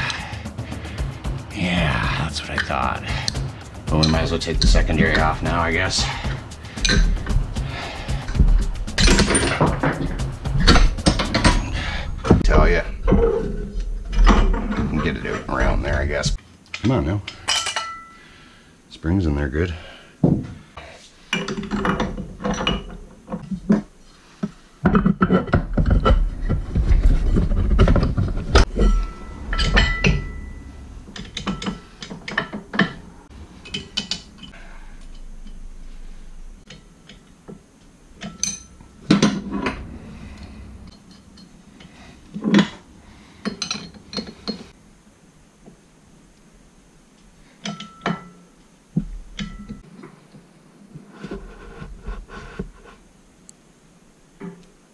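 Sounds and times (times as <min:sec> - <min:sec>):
metal tools and parts clinking: 0:02.4 - 0:12.4, 0:16.7 - 0:18.2, 0:21.3 - 0:23.6, 0:27.1 - 0:35.8, 0:38.2 - 0:42.8, 0:43.4 - 0:44.7, 0:47.6 - 0:48.5, 0:49.3 - 0:49.9.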